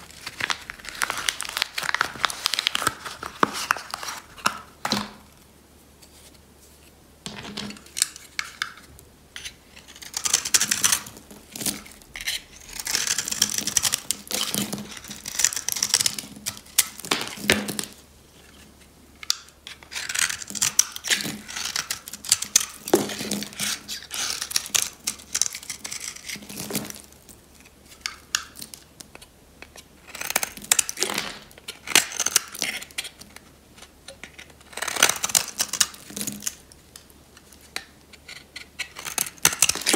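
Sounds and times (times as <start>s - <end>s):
knife scraping soap: 9.4s - 16.9s, 19.7s - 27.0s, 29.2s - 31.0s, 31.6s - 36.6s, 37.4s - 39.9s.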